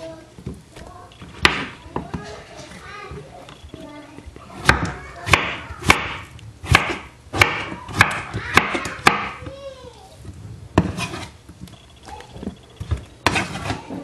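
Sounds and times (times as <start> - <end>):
knife chopping on wooden board: 1.3 - 2.2, 4.6 - 9.4, 10.8 - 11.3, 12.9 - 14.0.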